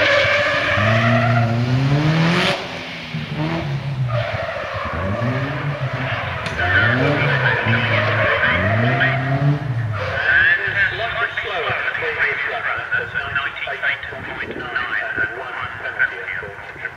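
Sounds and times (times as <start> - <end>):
car engine revving: 0.0 - 11.2.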